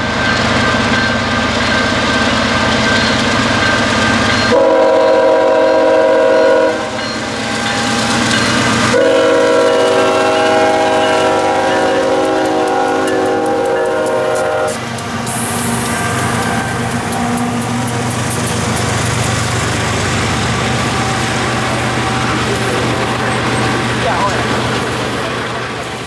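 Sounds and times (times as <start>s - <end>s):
train rumble and wheel clatter: 0.0s - 26.0s
locomotive horn chord: 4.5s - 7.0s, 8.9s - 18.7s.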